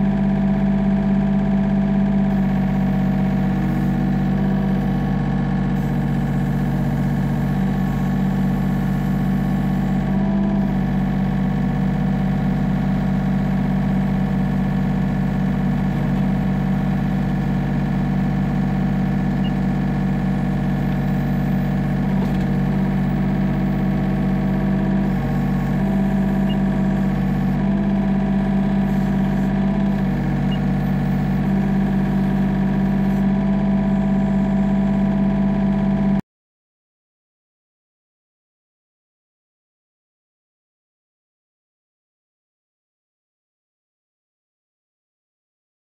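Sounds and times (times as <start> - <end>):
excavator diesel engine running: 0.0 - 36.2.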